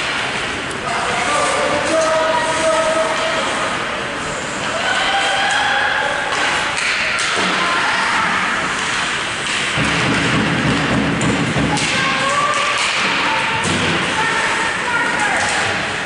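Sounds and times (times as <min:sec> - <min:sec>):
hockey sticks and puck clicking: 0:06.3 - 0:07.7, 0:08.7 - 0:14.2, 0:15.0 - 0:16.0.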